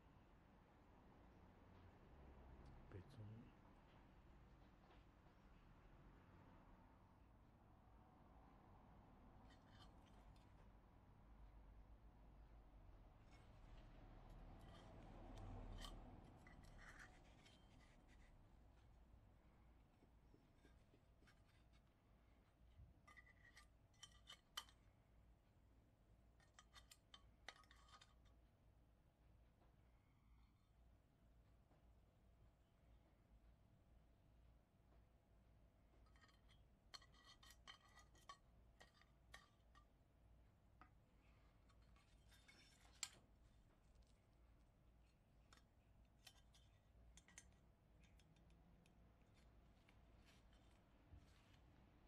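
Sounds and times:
metal tweezers clicking and scraping: 14.6s - 18.4s, 23.0s - 24.9s, 26.4s - 28.4s, 36.1s - 39.9s, 41.6s - 44.3s, 45.0s - 50.8s.

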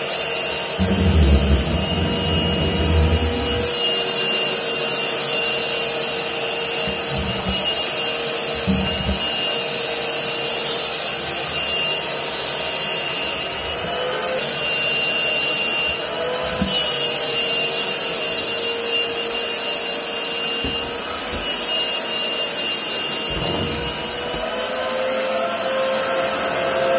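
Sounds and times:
shop vacuum running: 0.6s - 26.9s
air hissing through hose: 0.8s - 3.7s.

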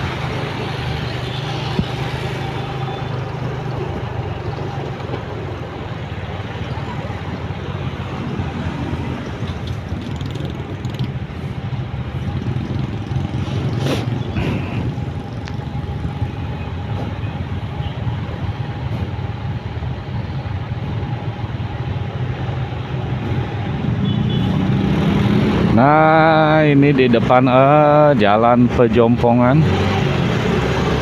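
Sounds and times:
motorcycles idling: 0.0s - 23.6s
road noise: 0.0s - 31.0s.

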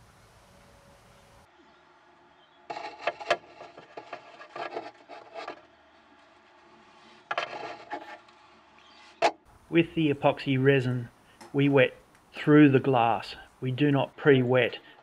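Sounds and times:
paintbrush scraping on cloth: 2.7s - 9.3s.

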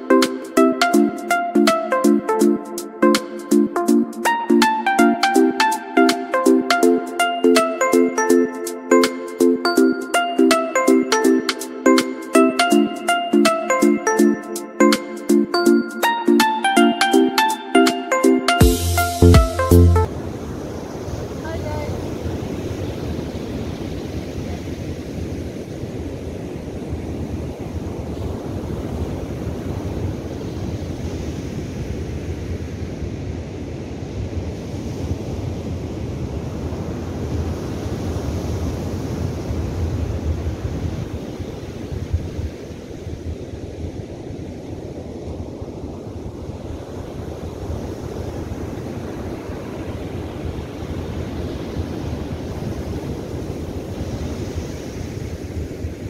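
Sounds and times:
ocean surf breaking on beach: 20.1s - 56.0s.

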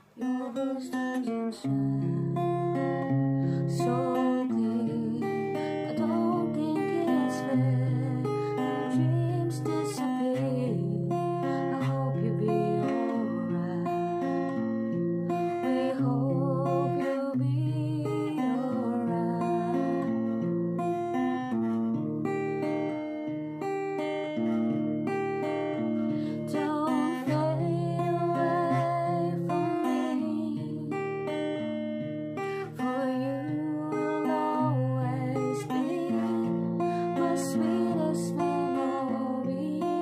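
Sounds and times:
acoustic guitar chords: 0.0s - 40.0s
woman singing with vibrato: 0.2s - 14.6s, 15.3s - 20.1s, 26.3s - 31.7s, 32.7s - 40.0s.

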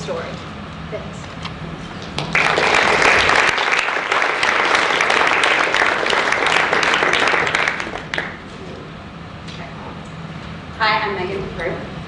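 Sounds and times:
audience applauding: 2.2s - 8.4s.

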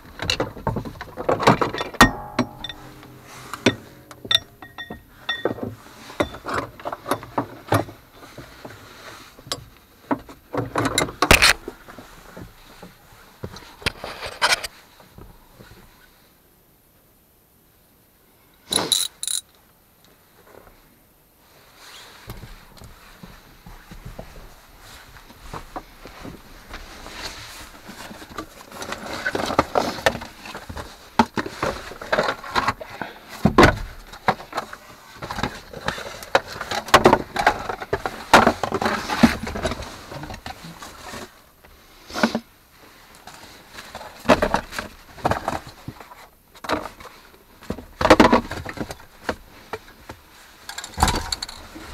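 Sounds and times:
knocking and clattering of gear: 0.0s - 8.8s, 43.9s - 51.9s.

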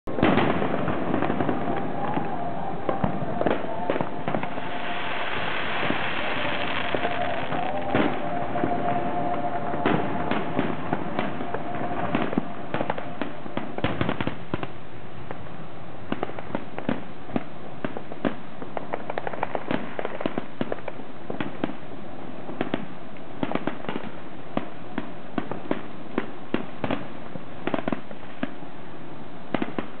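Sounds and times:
distant fireworks bursting: 0.1s - 28.7s, 29.4s - 30.0s.

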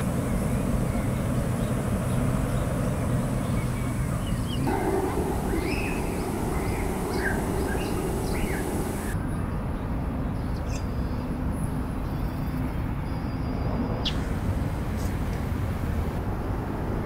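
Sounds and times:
small birds chirping: 0.0s - 9.2s
distant traffic rumble: 0.0s - 10.8s, 13.6s - 17.0s.

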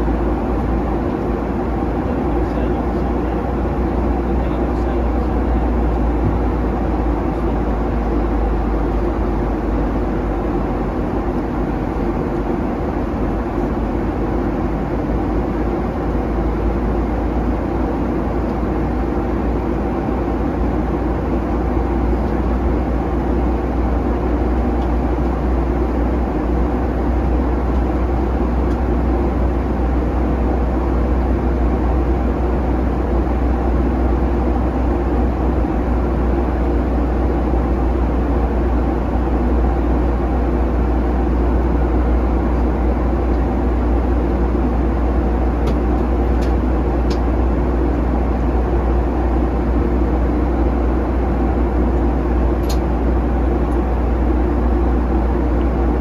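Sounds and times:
jet engine cabin drone: 0.0s - 56.0s.

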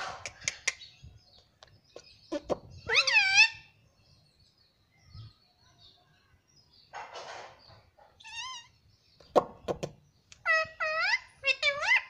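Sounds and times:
parakeet sharp clicks: 0.0s - 0.8s
parakeet pitched call: 2.3s - 3.7s.

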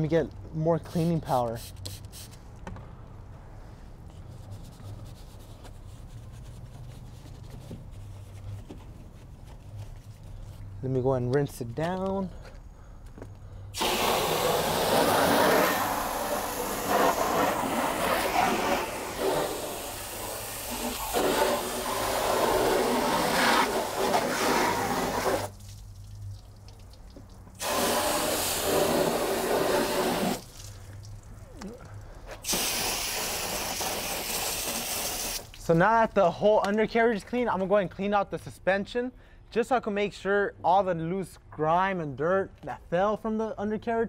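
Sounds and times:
water jet spraying: 13.8s - 26.0s, 26.8s - 30.8s, 32.4s - 35.6s.

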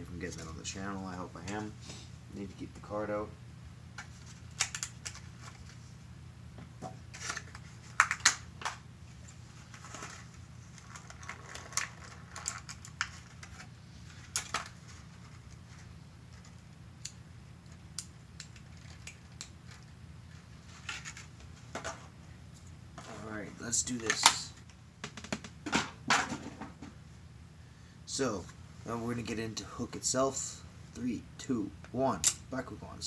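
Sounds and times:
steady low hum: 0.0s - 33.0s
hands handling plastic packaging: 7.1s - 16.7s.

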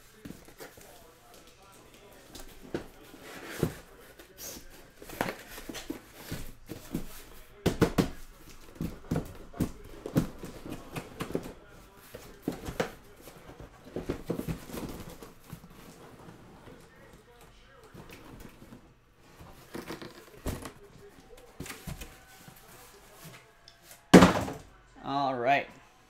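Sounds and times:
cardboard scraping and rustling: 2.2s - 7.4s.

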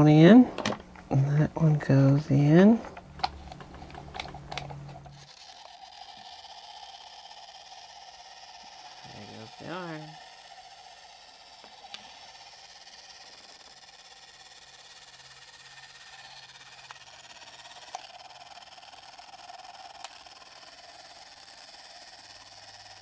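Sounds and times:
plastic toy parts clicking: 2.8s - 9.3s, 9.9s - 23.0s.

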